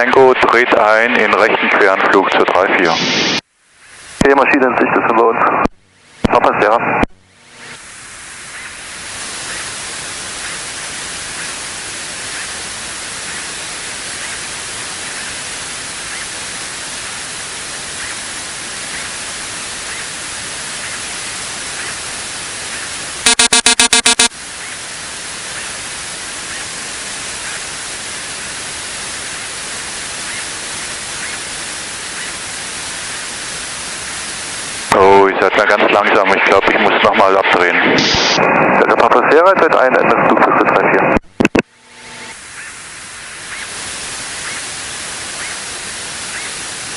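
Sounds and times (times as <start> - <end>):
headset radio hiss: 0.0 - 46.9
pulsing electronic beep: 23.2 - 24.3.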